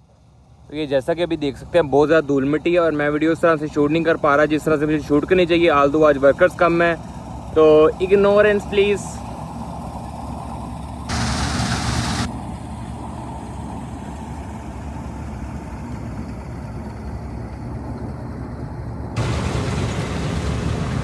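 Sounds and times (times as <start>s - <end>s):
combine harvester diesel engine: 0.0s - 21.0s
burst of hiss: 11.1s - 12.3s.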